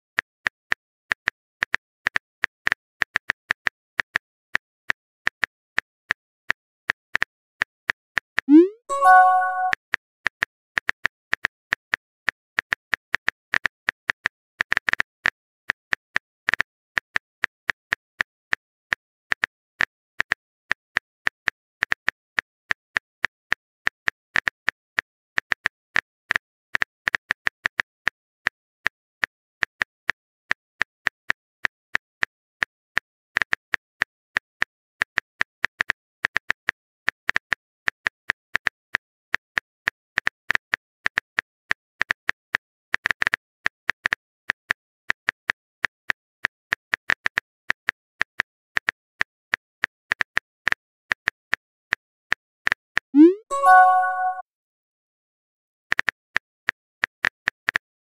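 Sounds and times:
phone keyboard typing clicks: 8.5s - 9.8s, 53.2s - 54.4s.

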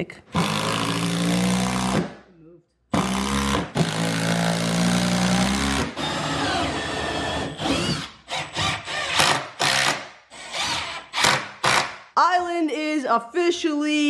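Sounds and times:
cordless drill driving screws: 3.0s - 11.9s.

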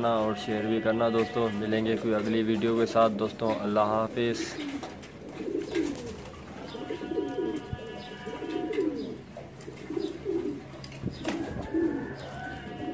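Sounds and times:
pigeons cooing: 3.4s - 12.9s.

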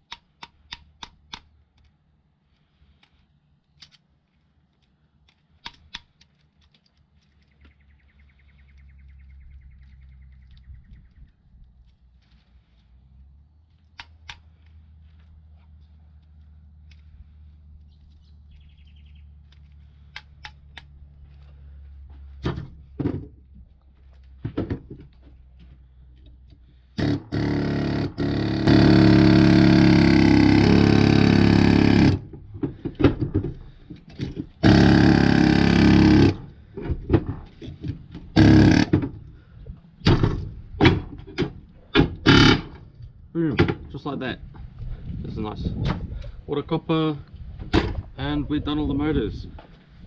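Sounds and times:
pneumatic air hammer running: 27.0s - 32.3s, 34.4s - 36.6s, 38.3s - 39.1s, 42.0s - 42.8s.

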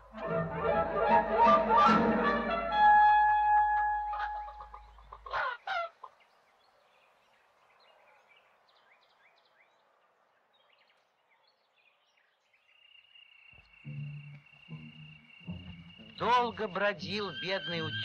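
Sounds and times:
faint high chirps: 12.6s - 18.0s.

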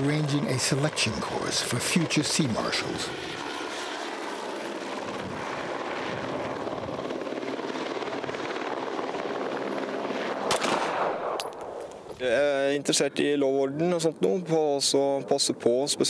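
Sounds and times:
helicopter rotor and turbine: 0.0s - 16.0s
pistol shots: 10.4s - 11.8s.

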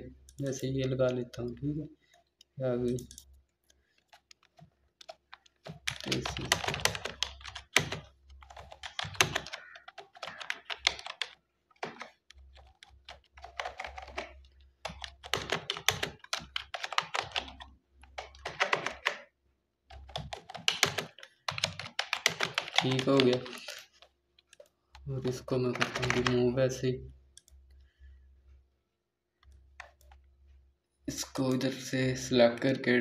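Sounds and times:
typing on computer keyboard: 3.9s - 19.3s, 19.9s - 26.6s, 29.4s - 30.2s.

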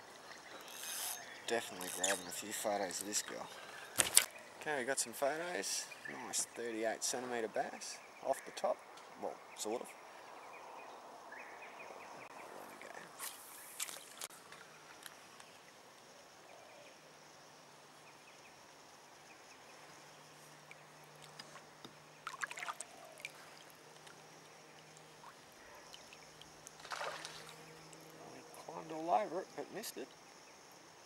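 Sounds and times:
water lapping around kayak: 20.6s - 28.0s
sharp splashes and knocks: 22.2s - 24.2s, 25.2s - 27.6s.

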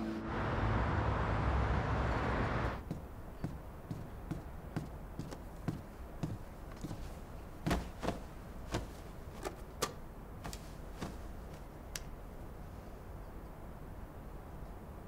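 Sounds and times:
footsteps across a room: 2.8s - 9.5s, 10.4s - 11.7s
light knocks of objects handled: 2.8s - 12.2s.

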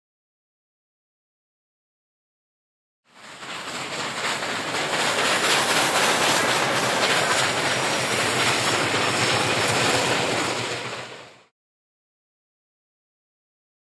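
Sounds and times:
train wheels rushing on rails: 3.1s - 11.5s.

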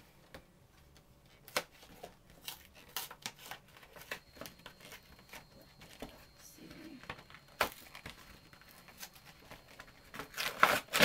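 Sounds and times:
packaging crinkling: 7.1s - 11.0s.

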